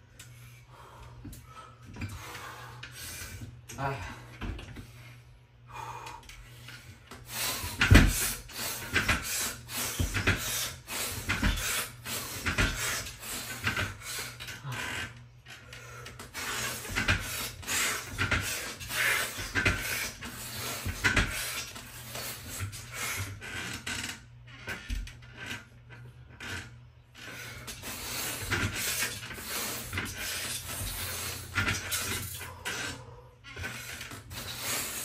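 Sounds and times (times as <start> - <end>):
knocks and rubbing on a bar: 7.5 - 15.0, 16.2 - 24.0, 27.4 - 35.0.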